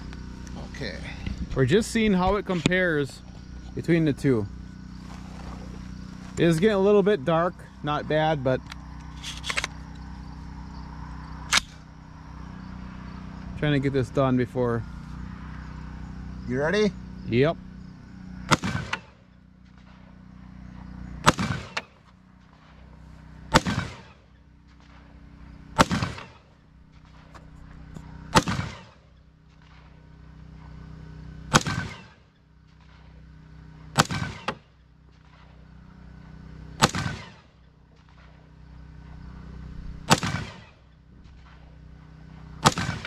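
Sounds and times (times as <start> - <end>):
steady low hum: 0.0 - 43.0
rifle shots: 11.5 - 11.8, 18.5 - 20.1, 21.2 - 22.9, 23.5 - 25.2, 25.8 - 27.3, 28.3 - 29.0, 31.5 - 32.2, 33.9 - 35.6, 36.8 - 38.4, 40.0 - 41.7, 42.6 - 43.0.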